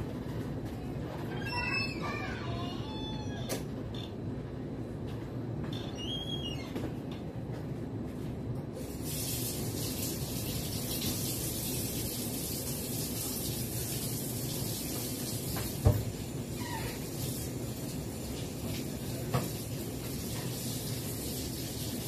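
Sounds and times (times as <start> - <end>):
water running into metal sink: 8.8 - 22.0.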